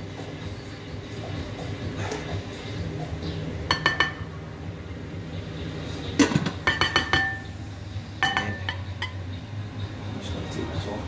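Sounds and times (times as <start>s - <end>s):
glass pot lid clinking: 3.7s - 4.3s, 6.2s - 7.4s, 8.2s - 9.2s
ceramic bowls clinking: 3.7s - 4.4s, 6.2s - 7.5s, 8.2s - 9.2s.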